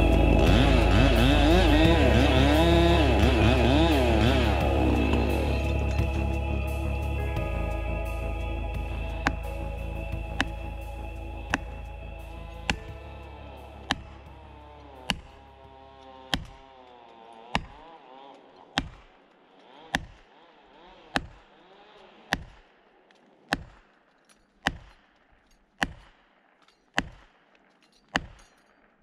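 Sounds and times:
axe hammering metal wedge: 13.8s - 16.9s, 17.5s - 17.8s, 18.6s - 19.1s, 19.9s - 20.3s, 21.1s - 21.5s, 22.3s - 22.6s, 23.5s - 23.8s, 24.6s - 25.1s, 25.8s - 26.1s, 26.8s - 27.3s, 28.0s - 28.6s.

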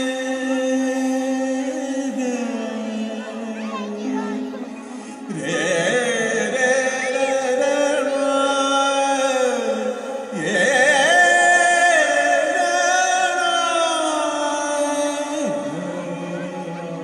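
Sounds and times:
music: 0.0s - 17.0s
person singing long held notes: 0.0s - 17.0s.

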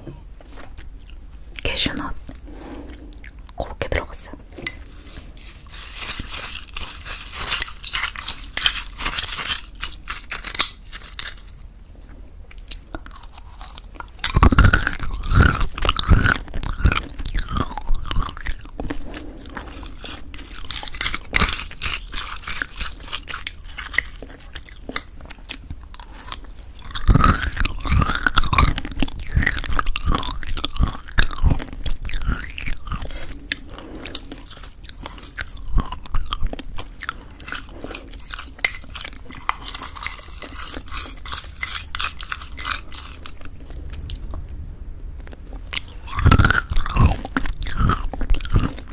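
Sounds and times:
crunchy chewing: 4.5s - 44.5s, 45.2s - 48.9s
spoon scraping glass: 4.6s - 11.6s.

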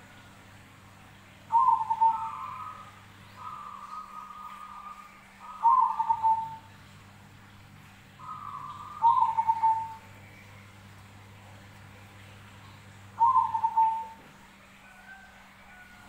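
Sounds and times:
dove cooing: 1.5s - 6.8s, 8.2s - 10.2s, 13.2s - 16.0s.

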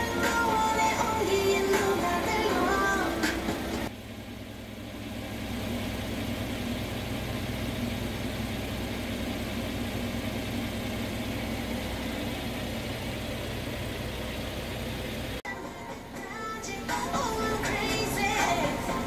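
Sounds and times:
background music: 0.0s - 3.9s, 15.5s - 19.0s
car engine idling: 0.0s - 19.0s.

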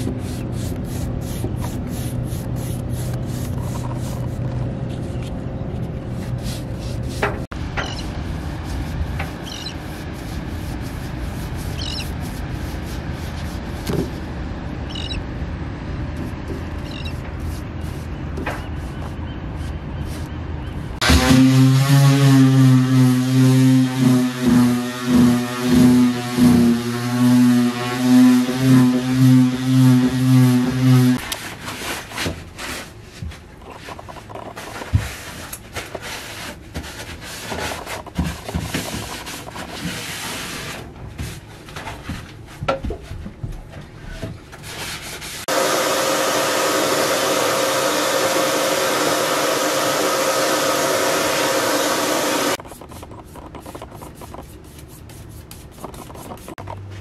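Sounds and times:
hand rubbing and scraping on wood: 0.0s - 14.2s, 23.9s - 43.2s, 44.5s - 45.5s, 52.4s - 57.0s
steady motor noise: 21.0s - 31.2s, 45.5s - 54.6s
machine humming loudly: 45.5s - 52.6s.

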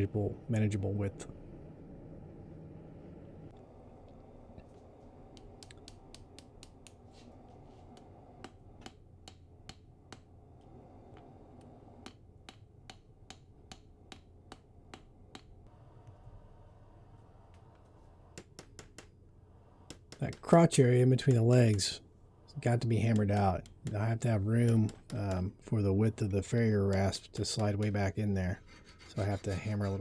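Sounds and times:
hammer tapping metal on anvil: 23.0s - 25.6s.

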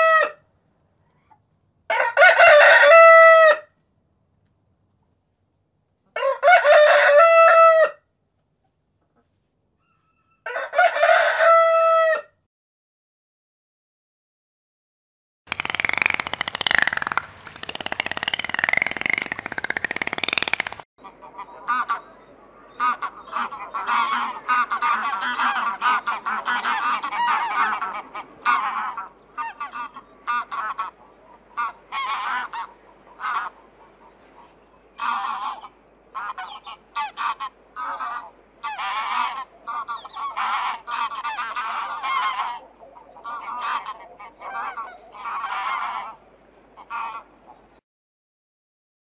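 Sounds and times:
geese honking: 21.0s - 47.6s.

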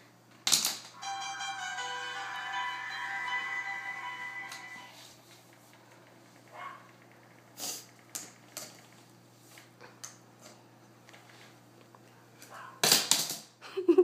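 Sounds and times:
faint steady hum: 0.0s - 12.7s.

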